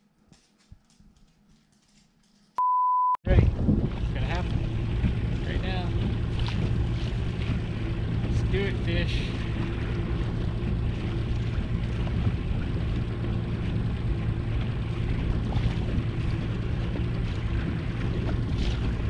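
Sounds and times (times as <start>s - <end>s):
wind and water noise: 3.2s - 19.0s
boat motor running: 3.3s - 19.0s.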